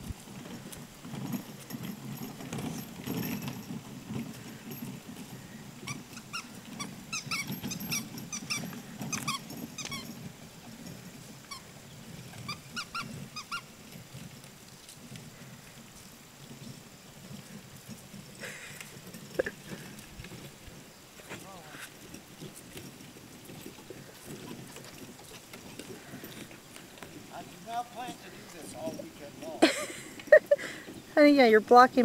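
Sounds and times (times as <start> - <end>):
wagon wheels rumbling on grass: 0.0 - 32.0
short high squeaks: 5.3 - 14.2.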